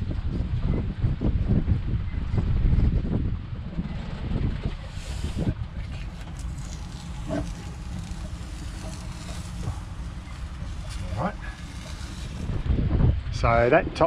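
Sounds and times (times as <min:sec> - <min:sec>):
wind buffeting microphone: 0:00.0 - 0:14.0
masking tape peeling rustles: 0:04.8 - 0:12.7.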